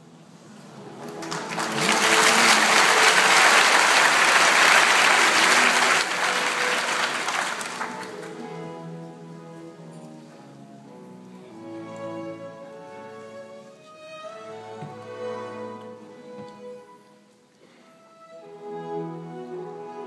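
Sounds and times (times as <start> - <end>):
audience applauding: 0.8 - 8.6
baroque orchestra with harpsichord: 4.8 - 20.0.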